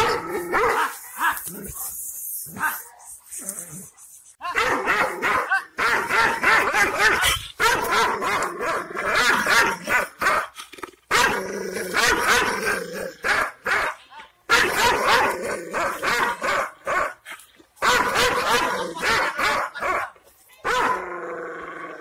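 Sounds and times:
dog barking angrily: 0.0 - 1.3, 4.5 - 17.2, 17.8 - 21.2.

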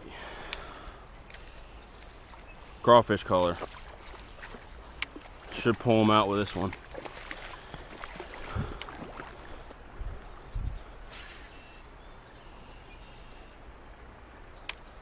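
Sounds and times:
faint river ambience: 0.0 - 15.0
short hiss: 11.1 - 11.8.

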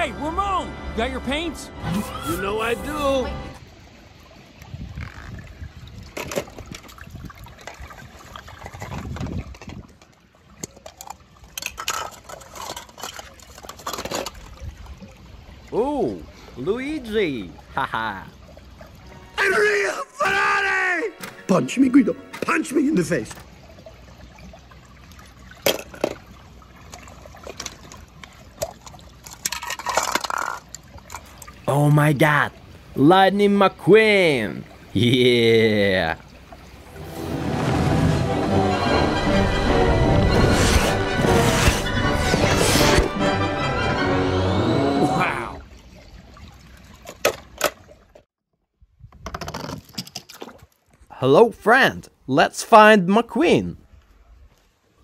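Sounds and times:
water splashing and dripping: 3.6 - 19.4, 21.1 - 33.0, 45.6 - 48.3.

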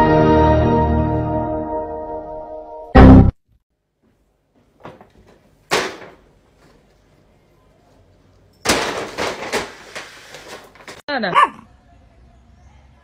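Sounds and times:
paper bag crinkling and rustling: 8.7 - 11.0.

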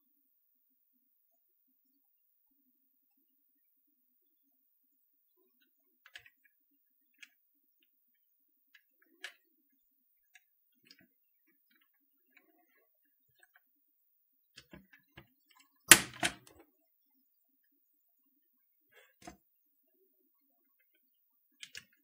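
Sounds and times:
faint keyswitch clicks and taps: 5.5 - 13.7.

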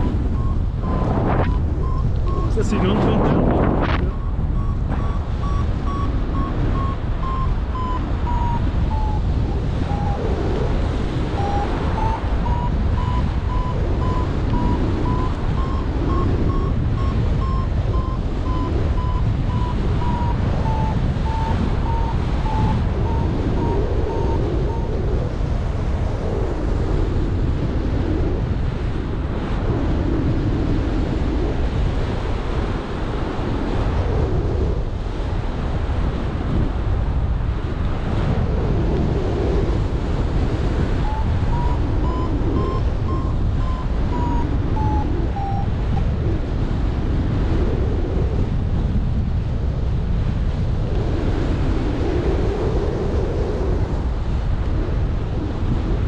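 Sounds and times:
variometer beeps: 0.0 - 25.4, 40.7 - 46.3
wind rushing over microphone: 0.0 - 56.0.

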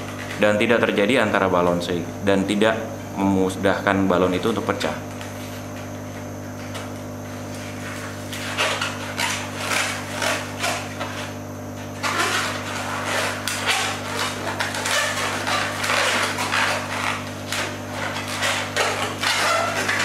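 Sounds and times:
balloon squeaking and rubbing: 7.6 - 11.4, 12.0 - 20.0.

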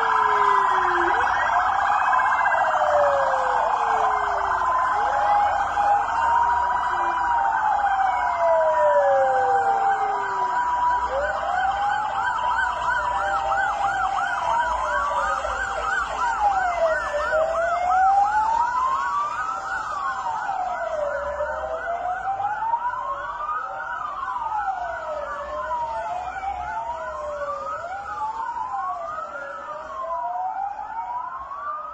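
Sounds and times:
siren fast yelp: 0.0 - 25.0
two-tone siren: 0.0 - 31.9
wailing sirens: 0.0 - 31.9.

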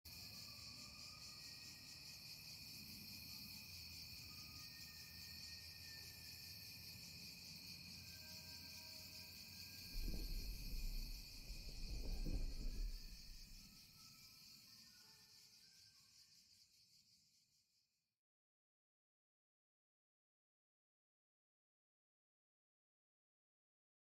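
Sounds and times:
crickets and insects chirring: 0.1 - 17.8
low rumble: 9.9 - 13.6.

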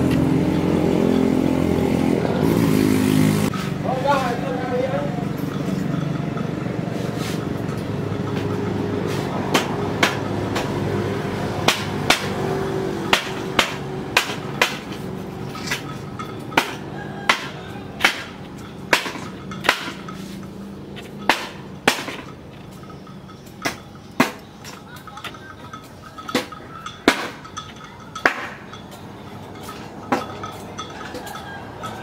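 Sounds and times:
sharp knocks: 9.5 - 10.8, 11.6 - 12.4, 13.1 - 15.0, 16.6 - 20.1, 21.2 - 22.3.

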